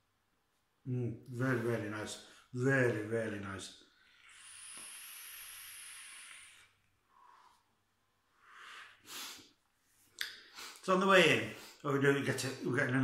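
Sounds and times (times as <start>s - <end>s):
breathy exhale: 4.1s - 7.8s
air hissing through vape coil: 4.2s - 6.8s.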